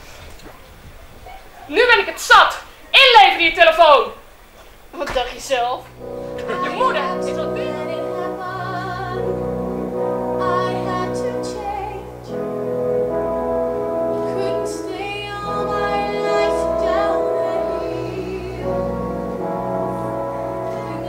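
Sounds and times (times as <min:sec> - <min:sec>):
musical accompaniment: 0:05.9 - 0:21.0
woman singing with vibrato: 0:06.0 - 0:12.6, 0:14.0 - 0:21.0.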